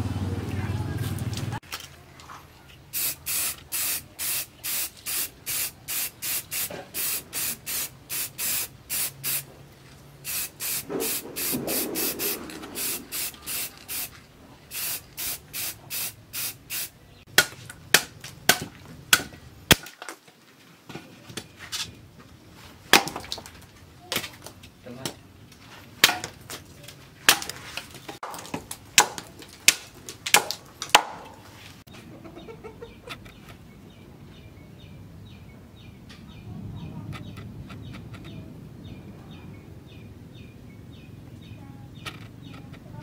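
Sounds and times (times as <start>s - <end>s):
aerosol spray can hissing: 3.0s - 9.4s, 10.3s - 14.1s, 14.7s - 16.9s.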